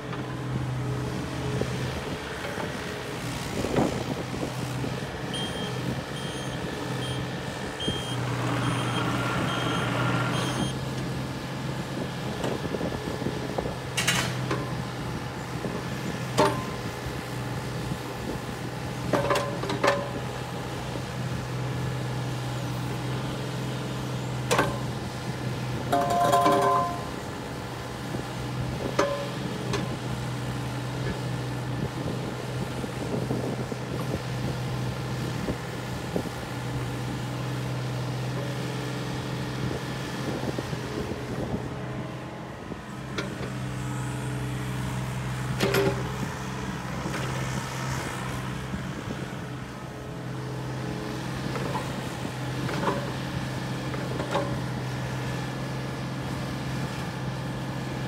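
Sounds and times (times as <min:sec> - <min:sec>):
excavator diesel engine running: 0:00.0 - 0:58.0
sharp metal clanks: 0:25.9 - 0:27.1.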